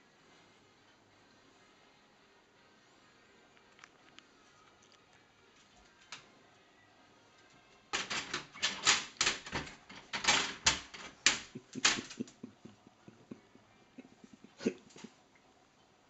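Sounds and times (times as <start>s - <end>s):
plastic dog flap rattling: 7.9s - 12.5s.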